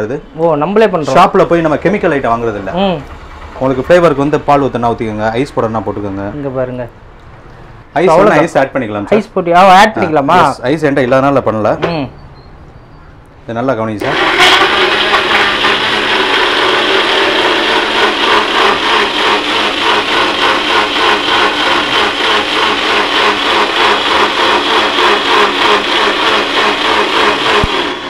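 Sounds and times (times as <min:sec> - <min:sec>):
blender motor running: 0:14.0 - 0:28.0.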